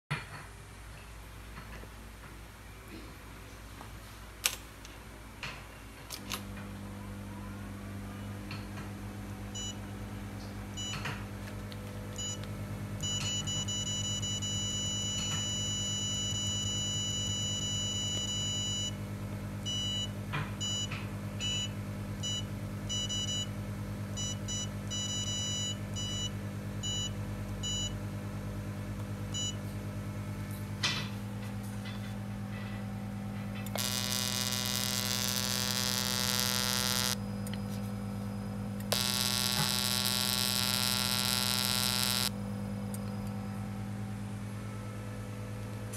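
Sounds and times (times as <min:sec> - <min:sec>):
long beep: 0:13.0 - 0:18.9, 0:33.8 - 0:37.2, 0:38.9 - 0:42.3
machine humming: 0:31.8 - 0:45.4
short high beeps: 0:38.9 - 0:42.3.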